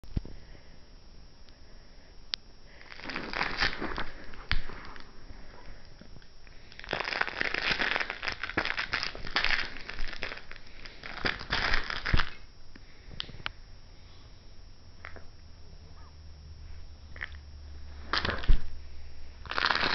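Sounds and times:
fabric rustling and crinkling: 0:02.8 - 0:05.7, 0:06.8 - 0:12.4.

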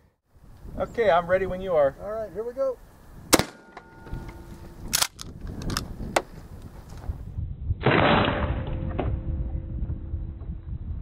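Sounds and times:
slowed-down shotgun boom: 0:07.4 - 0:11.0.

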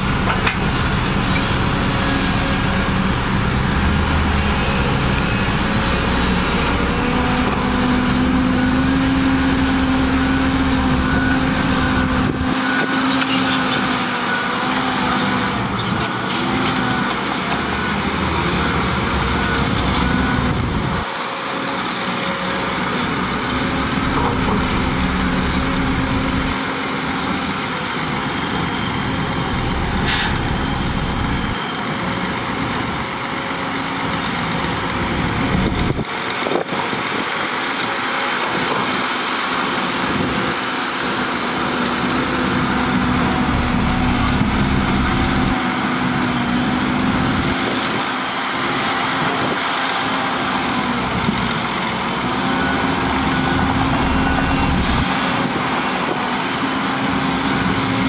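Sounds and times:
steady engine hum: 0:00.0 - 0:37.8, 0:38.4 - 0:58.0
heavy diesel engines running: 0:00.0 - 0:58.0.

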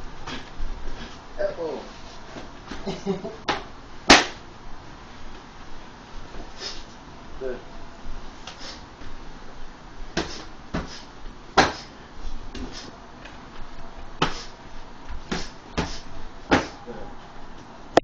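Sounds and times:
strikes smacking striking pads: 0:03.5 - 0:04.4, 0:11.6 - 0:11.9, 0:15.3 - 0:16.8.

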